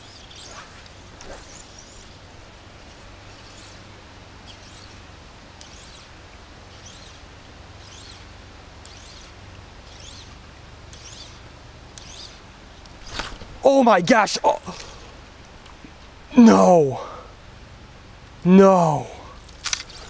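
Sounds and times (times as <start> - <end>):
background hiss: 0.0 - 20.0.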